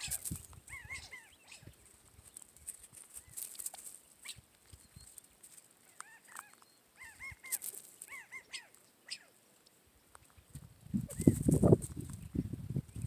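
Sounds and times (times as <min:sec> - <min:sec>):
quail call notes: 0:00.0 - 0:01.8, 0:05.8 - 0:09.4.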